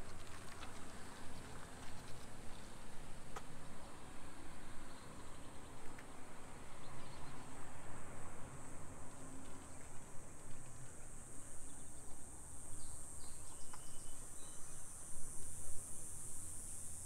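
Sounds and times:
insects buzzing: 7.1 - 17.0.

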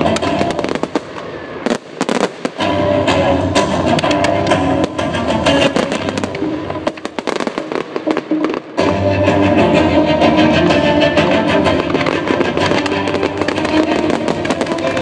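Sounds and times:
fireworks bangs and crackles: 0.0 - 15.0
loud show music: 0.0 - 15.0.

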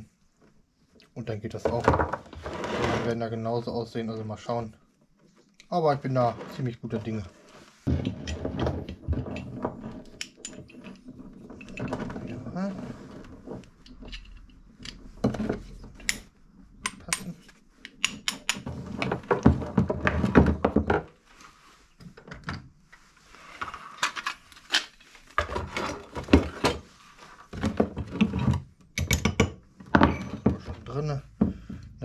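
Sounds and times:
metallic clicks and knocks: 13.8 - 18.7.

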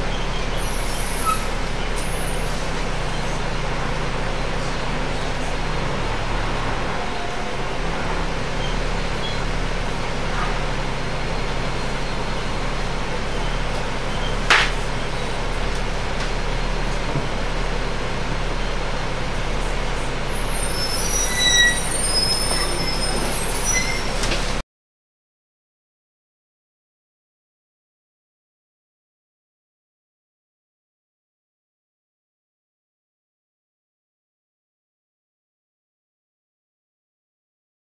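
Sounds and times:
bus engine running: 0.0 - 24.6
road and cabin rattle: 0.0 - 24.6
high-pitched brake squeals: 0.1 - 2.8, 20.3 - 24.6.

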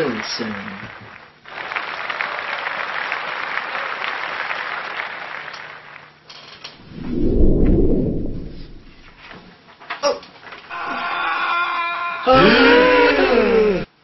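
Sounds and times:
applause: 0.0 - 6.3
low rumbling: 6.8 - 9.2.

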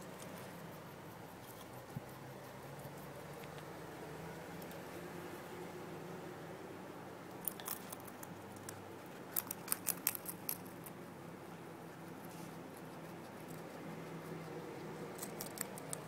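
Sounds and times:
guinea pig biting grass: 0.0 - 4.0, 7.3 - 16.0
faint steady hum: 0.0 - 16.0.

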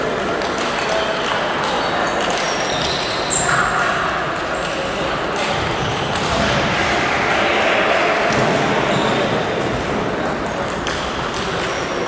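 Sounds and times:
echoing sports hall background noise: 0.0 - 12.0
table tennis balls clicking: 10.6 - 12.0.

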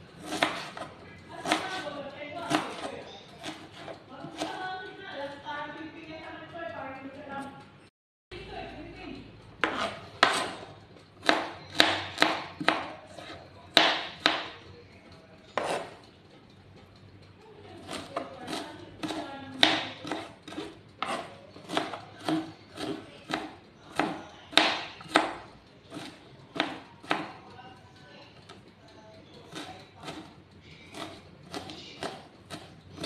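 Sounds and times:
knife chopping on plastic board: 0.2 - 4.7, 9.6 - 14.6, 15.5 - 16.0, 17.8 - 27.4, 29.5 - 30.3, 30.9 - 33.0.

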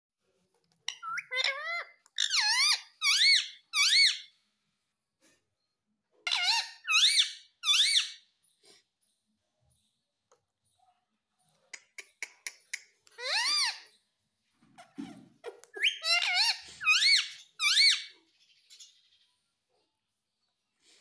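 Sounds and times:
parakeet squeaky calls: 0.9 - 4.3, 6.3 - 8.3, 13.2 - 13.9, 14.8 - 18.1.

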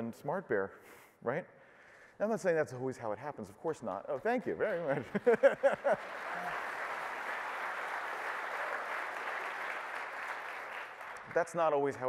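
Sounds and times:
audience applauding: 5.1 - 11.5.

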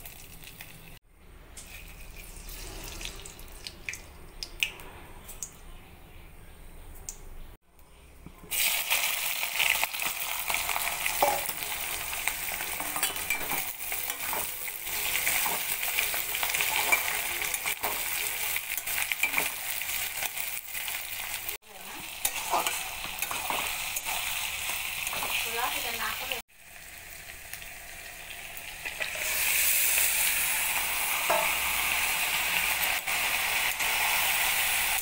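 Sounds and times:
onions sizzling in hot oil: 8.5 - 35.0
spatula scraping a wok: 22.2 - 25.5.

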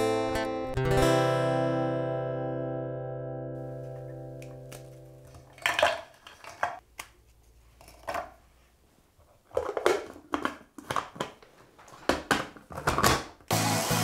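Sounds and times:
biscuits clattering in plastic bowl: 4.4 - 7.1, 9.4 - 13.5
plastic lid knocks and clicks: 12.0 - 13.4.

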